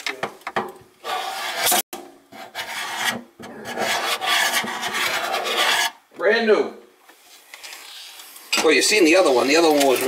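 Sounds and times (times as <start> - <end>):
rough rasping rubbing: 2.4 - 6.0.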